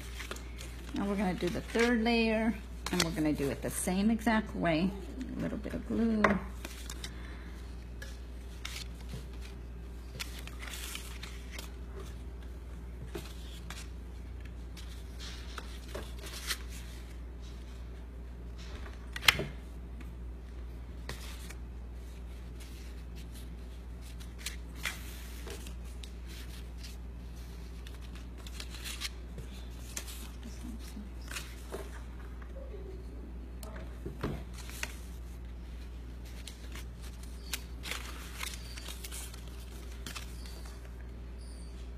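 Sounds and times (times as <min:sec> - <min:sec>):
paper rustling and scraping: 0:00.0 - 0:03.8, 0:08.0 - 0:12.3, 0:34.4 - 0:40.9.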